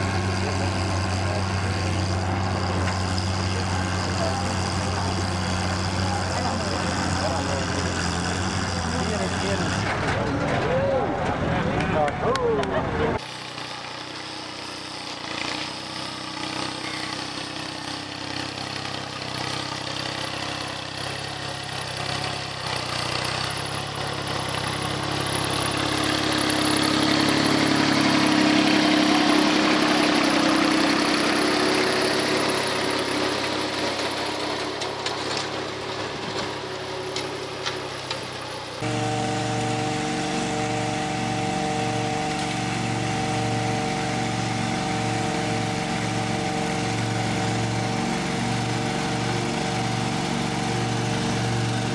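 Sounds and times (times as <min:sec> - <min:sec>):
riding lawn mower engine: 0:00.0 - 0:51.9
tractor engine running: 0:00.0 - 0:51.9.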